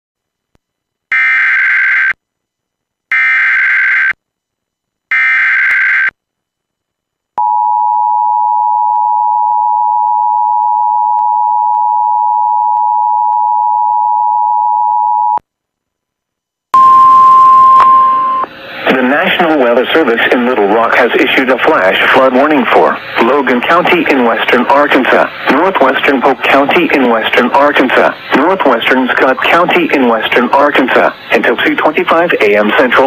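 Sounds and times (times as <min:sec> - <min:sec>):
static with steady tone: 0:00.2 - 0:08.4, 0:15.2 - 0:33.0.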